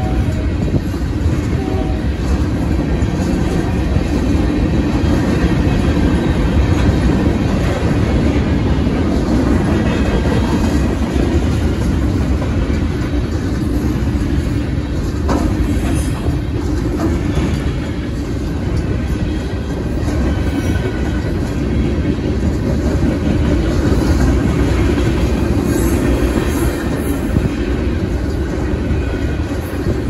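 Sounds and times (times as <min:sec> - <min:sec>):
freight train wheels rumbling: 0:00.0 - 0:30.0.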